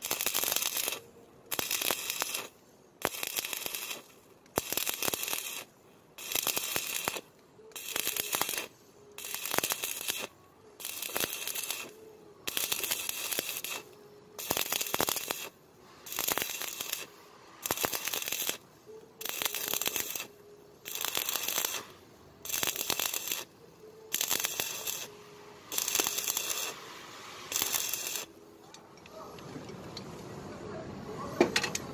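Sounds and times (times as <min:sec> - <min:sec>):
welding arc crackling and sputtering: 0:00.0 - 0:28.4.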